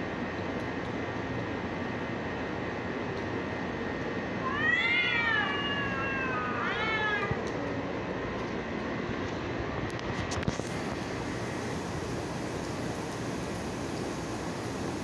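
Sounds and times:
steady background noise: 0.0s - 15.0s
cats yowling: 4.4s - 7.8s.

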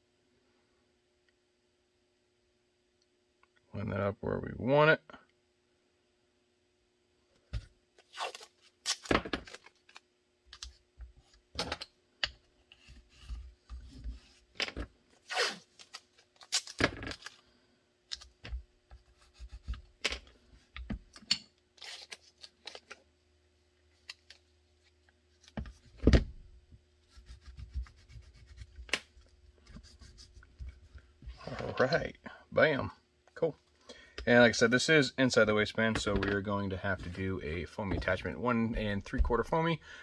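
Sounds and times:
faint steady hum: 0.0s - 40.0s
tape ripping off a roll: 8.0s - 10.7s, 14.5s - 17.4s, 21.8s - 23.0s
hand rubbing tape: 18.9s - 19.9s, 27.0s - 31.1s.

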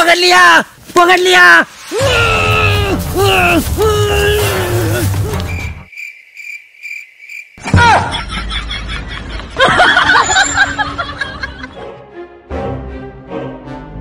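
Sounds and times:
cricket chirping: 5.3s - 7.7s
people laughing: 7.8s - 11.8s.

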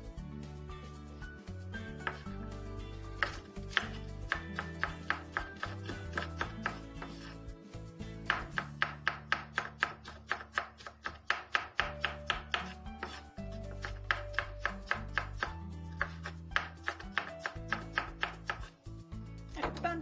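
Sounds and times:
background music: 0.0s - 20.0s
knife slicing on wooden board: 3.2s - 7.4s, 8.3s - 18.7s.

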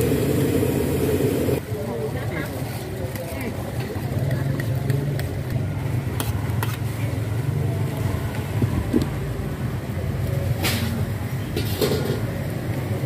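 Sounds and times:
low hum: 0.0s - 1.6s.

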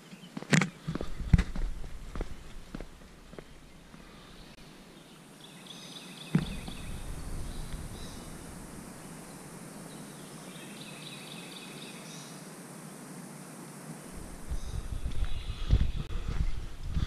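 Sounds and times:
songbirds singing: 0.0s - 12.5s, 14.1s - 17.0s
thump: 6.3s - 8.6s.

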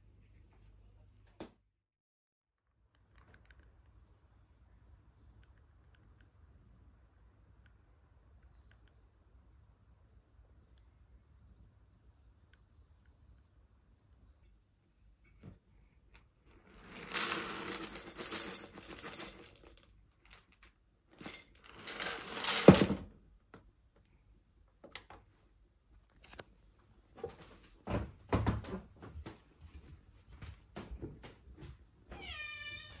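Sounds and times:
rustling and scraping: 16.5s - 23.0s.

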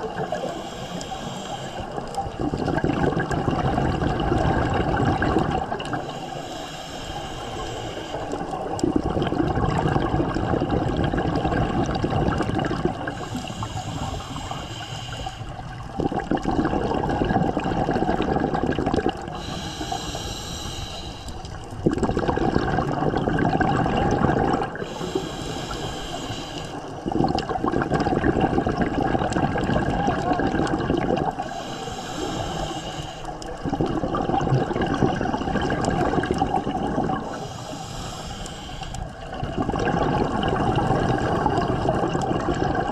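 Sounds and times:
hissing regulator inhale: 0.0s - 2.4s, 5.7s - 8.8s, 13.1s - 17.0s, 19.1s - 21.8s, 24.6s - 27.2s, 31.3s - 33.6s, 37.2s - 39.3s
exhaled bubbles rushing: 1.9s - 6.2s, 8.2s - 14.6s, 15.5s - 19.6s, 21.5s - 25.8s, 26.8s - 31.7s, 33.2s - 37.5s, 39.0s - 42.9s.

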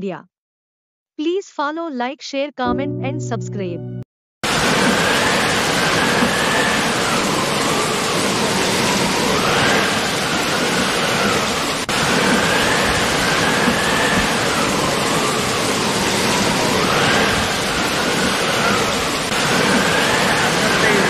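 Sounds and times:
loud rushing noise: 4.4s - 21.0s.

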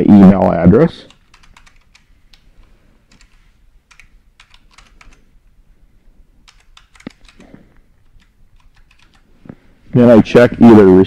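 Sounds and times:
typing on computer keyboard: 1.1s - 2.5s, 3.1s - 5.3s, 6.4s - 9.3s.

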